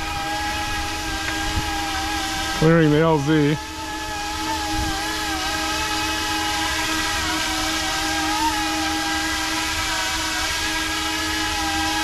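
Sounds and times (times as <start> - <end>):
model helicopter motor whine: 0.0 - 12.0.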